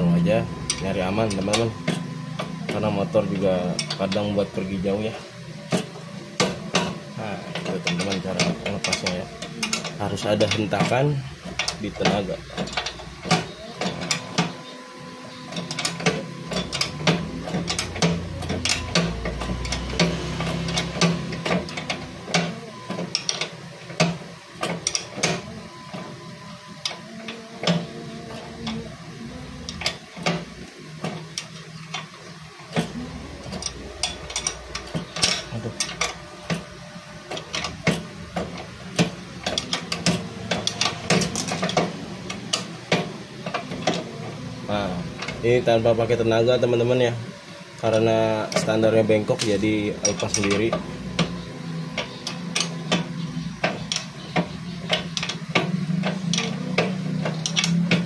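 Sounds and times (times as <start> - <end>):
ratchet wrench clicking: 50.0 - 58.0.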